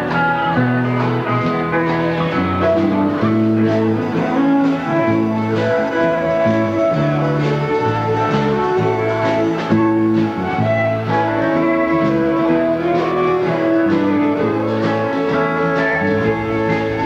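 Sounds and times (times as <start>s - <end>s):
guitar melody: 0.0s - 17.0s
steady drum beat: 0.0s - 17.0s.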